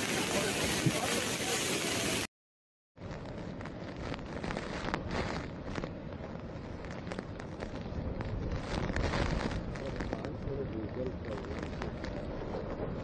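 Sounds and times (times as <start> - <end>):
cyclone wind: 0.0 - 2.3, 3.0 - 13.0
heavy rain: 0.0 - 2.3
wind buffeting microphone: 3.1 - 13.0.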